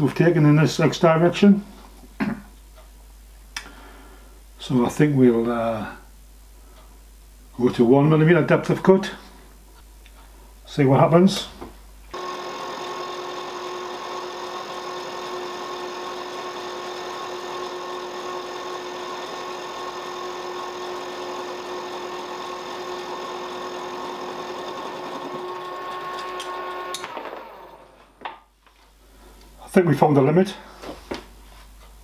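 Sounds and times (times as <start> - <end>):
milling machine whine: 12.2 - 28.1.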